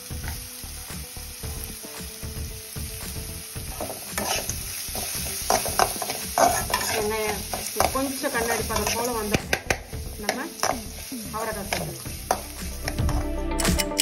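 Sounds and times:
food sizzling in hot oil: 0:00.0 - 0:13.2
metal spatula scraping a pan: 0:03.7 - 0:09.2.

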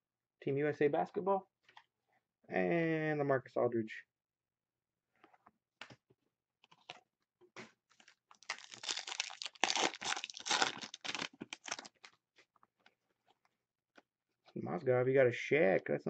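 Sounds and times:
foil wrapper tearing and crinkling: 0:08.0 - 0:12.1.

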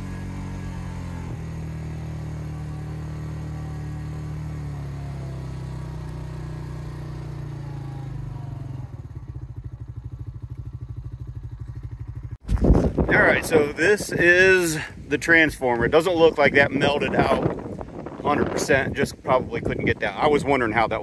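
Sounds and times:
engine idling with rapid pulsing: 0:00.0 - 0:12.4
atv engine running: 0:00.0 - 0:21.0.

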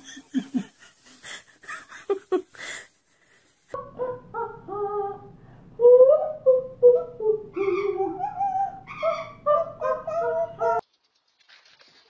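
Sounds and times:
woman singing wordlessly: 0:03.8 - 0:08.2
parrot singing: 0:06.6 - 0:10.8.

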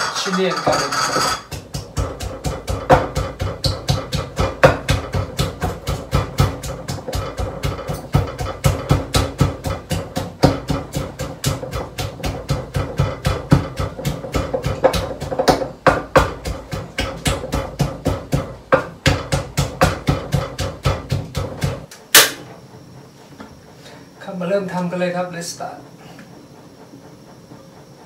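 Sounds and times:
pestle pounding in a mortar: 0:00.0 - 0:22.4.

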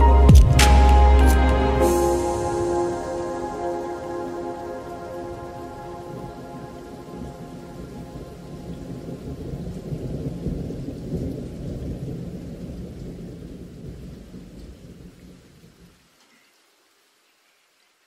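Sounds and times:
low rumbling noise: 0:00.0 - 0:14.0
faint hiss: 0:14.4 - 0:18.0.

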